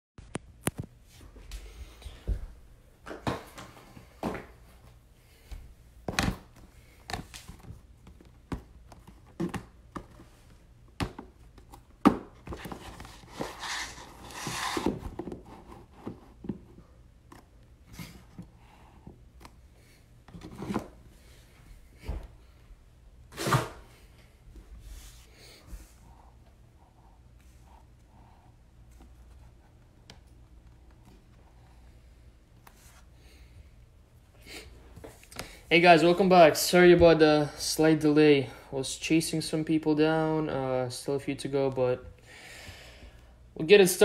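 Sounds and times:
boxes scraping and sliding: 12.6s - 16.0s.

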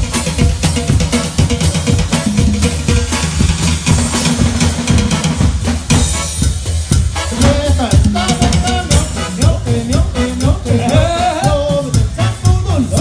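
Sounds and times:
bass: 0.0s - 13.0s
drum kit beat: 0.0s - 13.0s
melody line: 2.1s - 3.6s, 8.0s - 9.2s.

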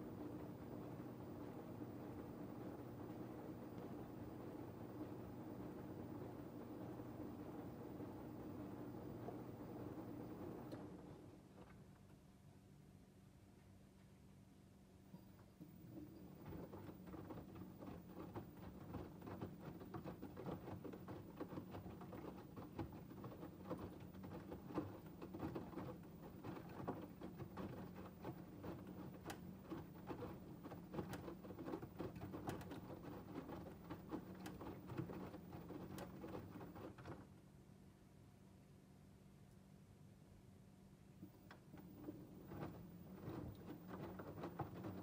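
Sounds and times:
laundry sloshing in washing machine: 0.0s - 12.0s, 15.6s - 37.4s, 41.2s - 45.0s.

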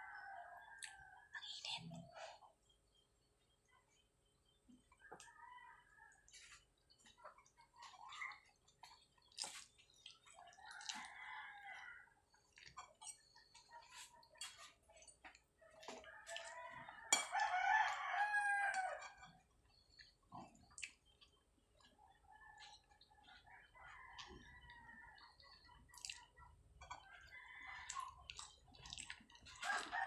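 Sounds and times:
chewing and soft clicks: 0.1s - 30.0s
rooster crowing: 16.2s - 19.2s, 29.6s - 30.0s.

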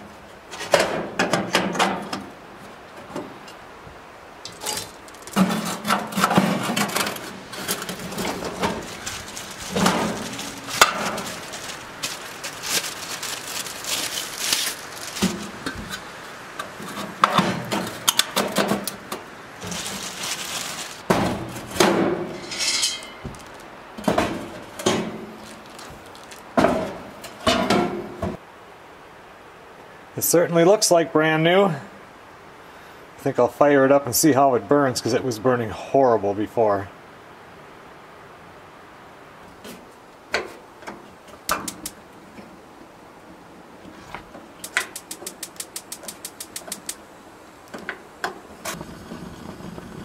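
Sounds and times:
metal grill parts clanking: 0.5s - 2.3s, 4.4s - 12.9s, 21.1s - 25.7s
metal scraping: 4.5s - 19.0s, 19.6s - 23.7s.

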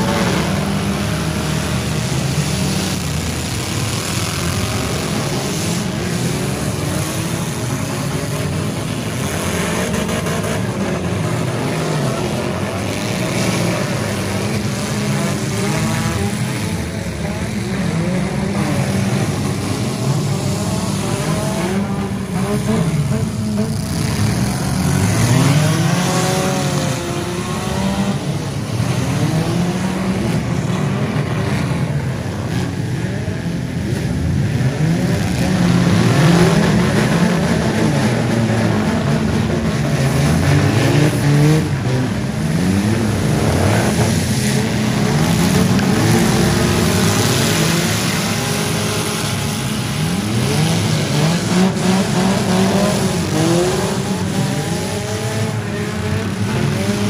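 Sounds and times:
car engines revving hard: 0.0s - 57.0s.

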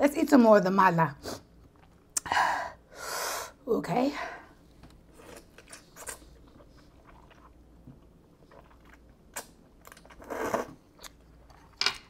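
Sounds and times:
quiet chewing: 4.9s - 10.2s.

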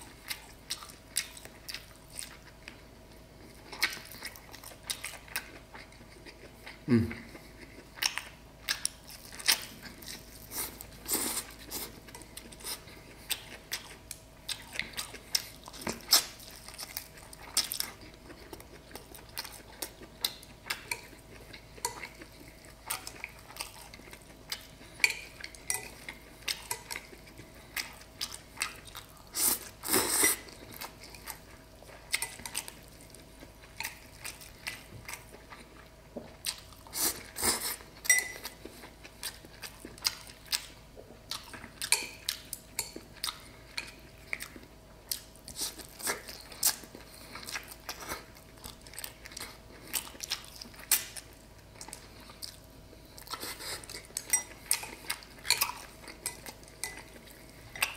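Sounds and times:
chewing: 0.0s - 57.9s.

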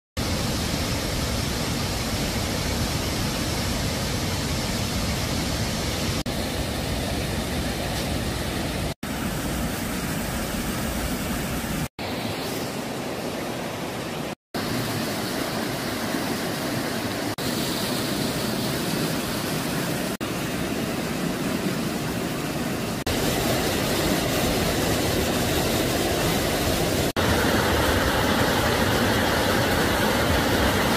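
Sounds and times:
waterfall and stream rushing: 0.2s - 30.9s.

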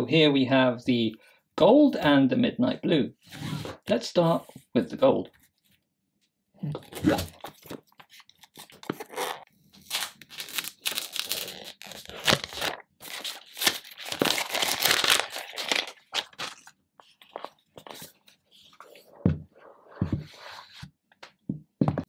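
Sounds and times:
plastic wrap tearing and crinkling: 8.4s - 17.6s.

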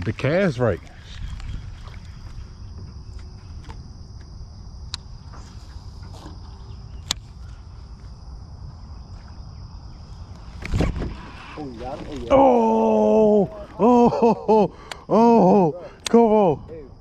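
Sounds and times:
wind rumble on microphone: 0.0s - 12.3s.

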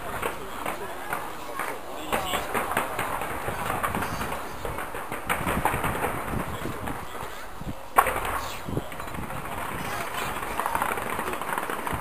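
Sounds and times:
fireworks popping and crackling: 0.0s - 12.0s
murmur of crowd: 0.0s - 12.0s
loud firework bang: 2.1s - 7.0s.

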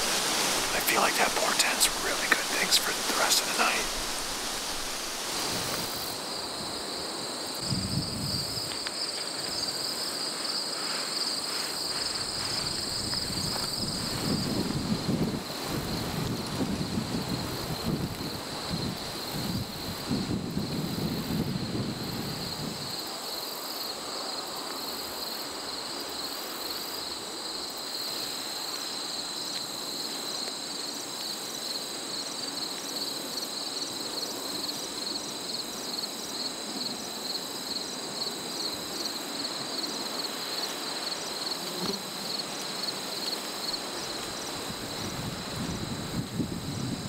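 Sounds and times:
insects chirping: 0.0s - 47.0s
wind on microphone: 7.6s - 8.7s, 12.2s - 22.9s, 44.4s - 47.0s.

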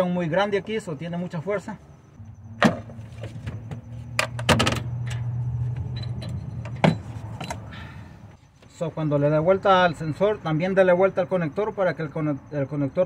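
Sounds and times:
steady low hum: 0.9s - 8.6s.

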